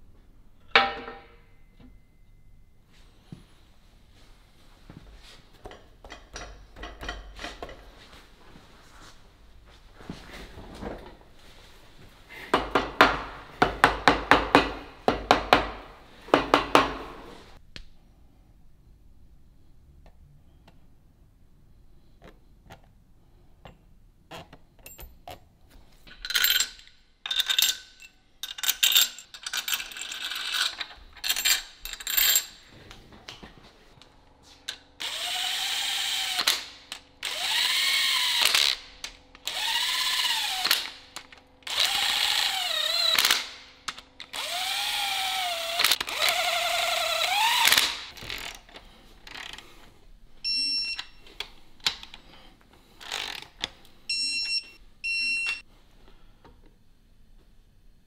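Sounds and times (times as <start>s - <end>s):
handheld power tool motor: 35.0s - 43.6s, 44.2s - 48.6s, 53.0s - 53.5s.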